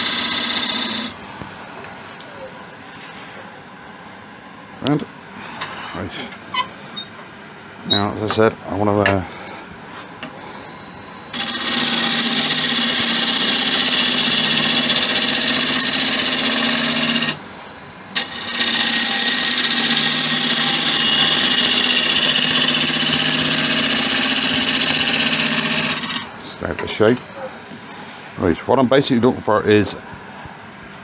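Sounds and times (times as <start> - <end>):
gouge cutting spinning wood: 0.0 - 1.2, 11.3 - 17.4, 18.2 - 26.4
wood lathe humming: 0.0 - 2.0, 11.3 - 27.3.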